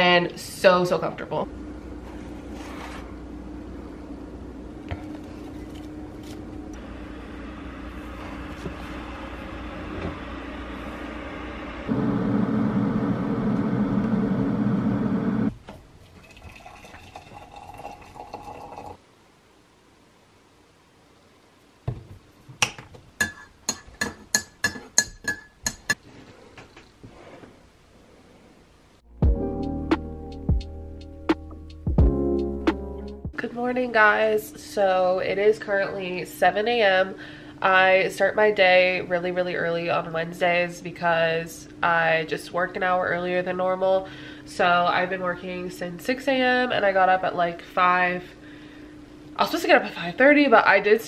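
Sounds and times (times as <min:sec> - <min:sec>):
steady low hum: 0:00.0 - 0:18.9.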